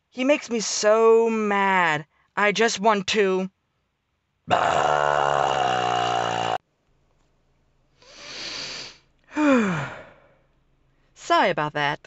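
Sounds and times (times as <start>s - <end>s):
rough fire-breathing roar: 4.5s - 6.6s
drawn breath in: 8.0s - 10.4s
woman sighing: 9.3s - 10.4s.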